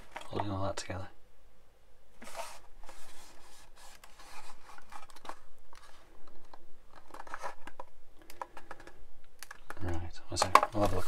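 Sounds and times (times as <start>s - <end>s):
plastic rubbing against fingers: 2.2s - 10.0s.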